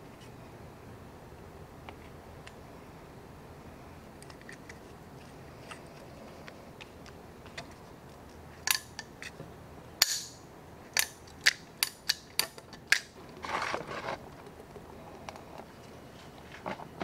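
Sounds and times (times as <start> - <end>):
metal parts clicking: 8.6 - 9.4.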